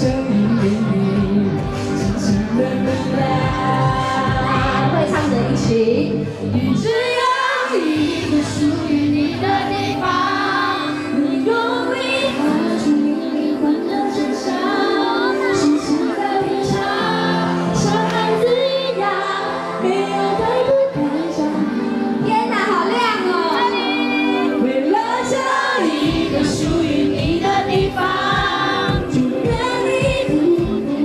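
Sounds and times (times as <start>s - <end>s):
drums and bass beat: 0.0s - 5.4s, 26.1s - 31.0s
band backing: 0.0s - 15.0s, 15.6s - 31.0s
woman singing: 0.0s - 31.0s.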